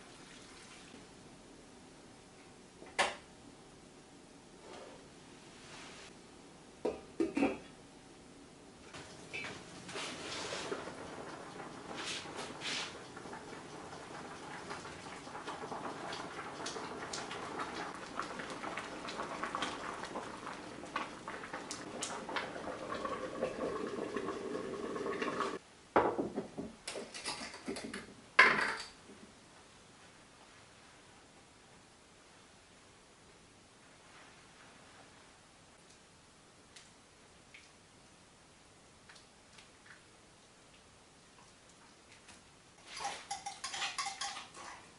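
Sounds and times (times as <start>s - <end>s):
pot of vegetables simmering: 8.9s - 25.6s
wooden spatula stirring: 9.0s - 13.7s, 42.8s - 44.9s.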